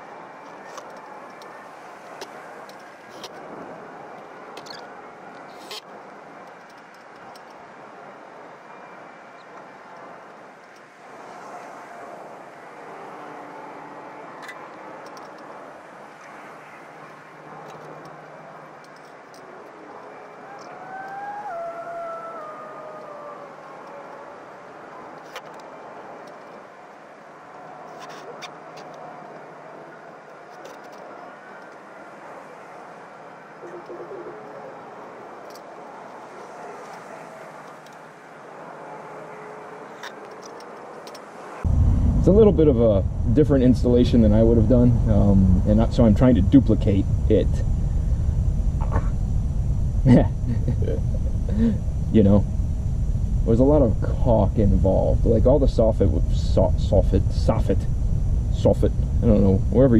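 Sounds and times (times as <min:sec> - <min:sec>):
distant engine hum: 0:00.0 - 0:59.9
engine drone: 0:41.4 - 0:59.9.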